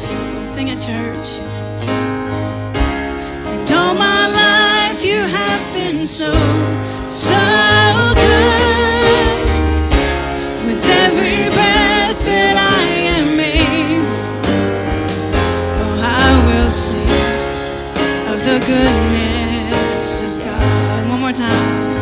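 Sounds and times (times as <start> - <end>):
acoustic guitar: 0.0 - 22.0
drums: 0.0 - 22.0
keyboard: 0.0 - 22.0
man singing lead: 3.5 - 9.7, 10.4 - 14.6, 15.3 - 22.0
backing voices singing: 3.6 - 22.0.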